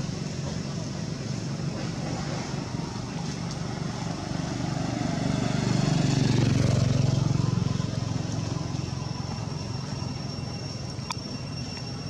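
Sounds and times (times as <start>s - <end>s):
motorbike engine passing: 1.6s - 10.1s.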